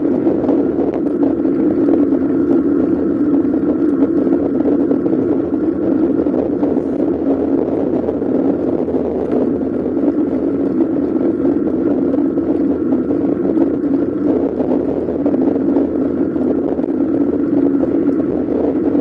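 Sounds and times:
bicycle road noise: 0:00.0 - 0:19.0
wind noise: 0:00.0 - 0:19.0.

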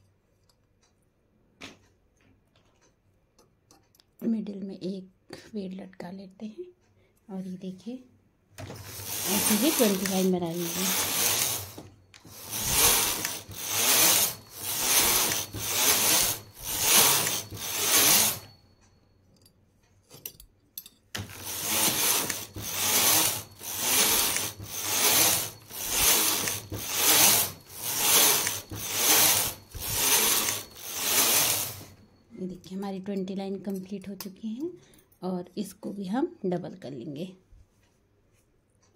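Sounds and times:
knitting machine carriage rasping: 0:08.6 - 0:18.7, 0:21.2 - 0:32.0.

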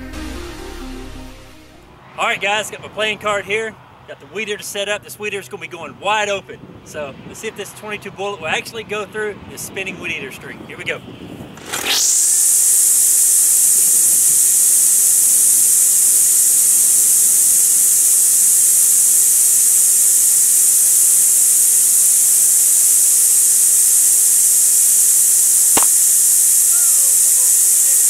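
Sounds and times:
string trimmer engine revving: 0:11.6 - 0:28.0.

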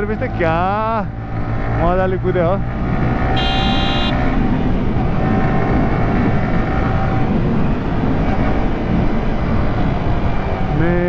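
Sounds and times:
motorcycle engine cruising: 0:00.0 - 0:10.1
high beep: 0:03.4 - 0:04.1
wind noise: 0:03.4 - 0:11.0.

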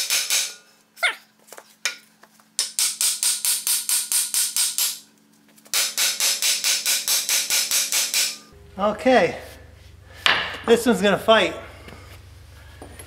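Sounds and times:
hammer striking steel: 0:02.6 - 0:05.0, 0:05.7 - 0:08.6.

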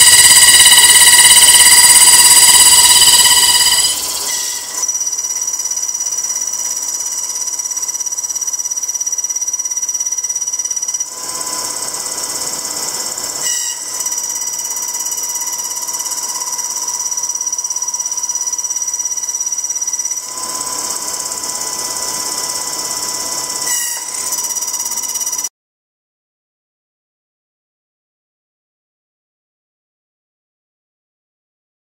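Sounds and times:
electric spindle whine: 0:00.0 - 0:25.5.

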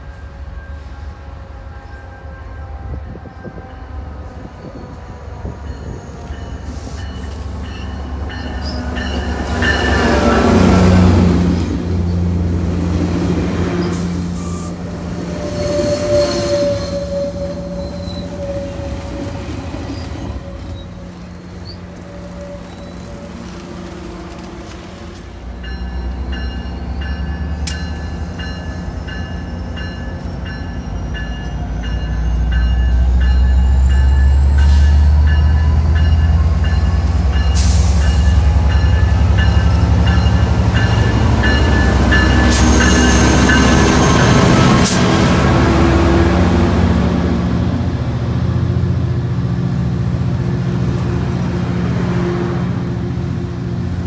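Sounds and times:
train coaches rolling past: 0:00.0 - 0:54.0
locomotive bell clanging: 0:05.6 - 0:10.7, 0:25.6 - 0:44.9.

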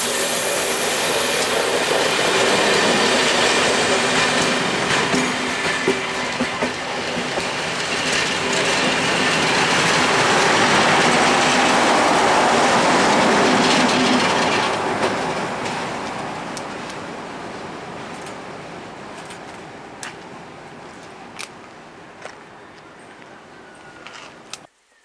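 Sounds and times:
diesel locomotive passing: 0:00.0 - 0:24.7
train wheels clattering over rail joints: 0:00.1 - 0:17.1.

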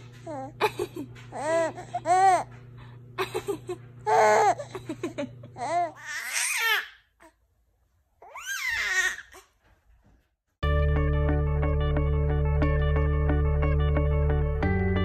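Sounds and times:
infant cooing and babbling: 0:01.3 - 0:02.5, 0:04.1 - 0:04.8
infant squealing: 0:05.6 - 0:07.0, 0:08.2 - 0:09.4.

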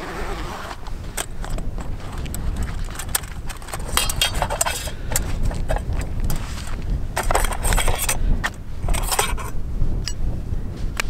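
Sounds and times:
wind buffeting microphone: 0:00.0 - 0:11.0
metal cook pot and lid clinking: 0:03.8 - 0:04.9.

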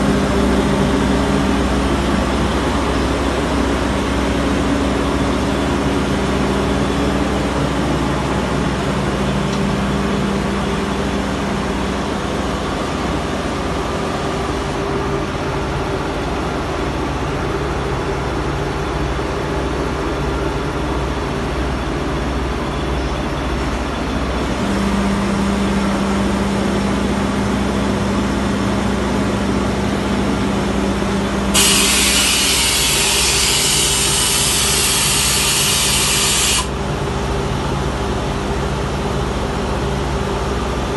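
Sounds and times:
air compressor humming: 0:31.0 - 0:37.0
loud hiss: 0:31.6 - 0:36.7.

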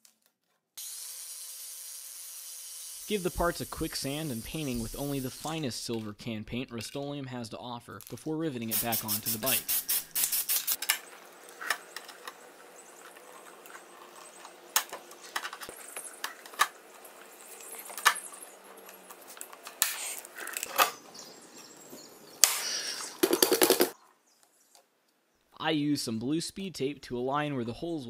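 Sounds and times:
fast run of clicks: 0:22.5 - 0:24.0.

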